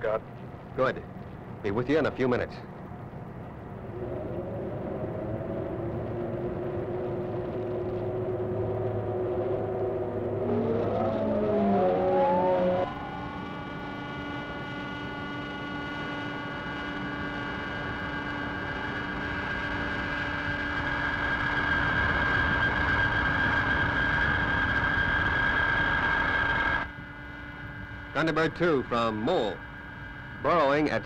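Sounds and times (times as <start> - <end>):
whirring drone: 2.7 - 31.0
drilling machine whine: 4.0 - 31.0.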